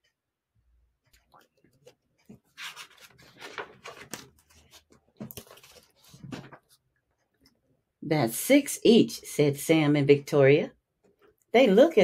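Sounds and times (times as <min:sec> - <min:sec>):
book pages rustling: 0:01.1 - 0:06.9.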